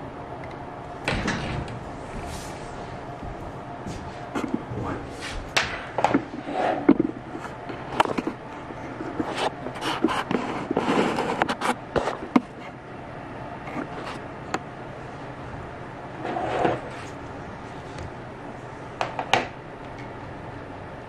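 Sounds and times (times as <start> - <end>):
usb cable clicking and scraping: 9.0 - 12.7.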